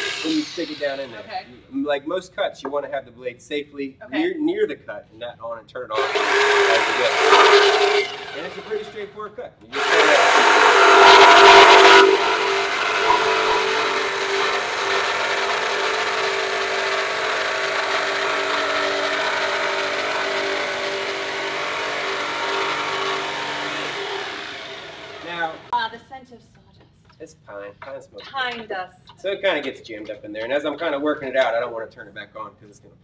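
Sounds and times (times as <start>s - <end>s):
jigsaw blade buzzing through wood: 6.0s - 8.8s, 9.8s - 25.7s.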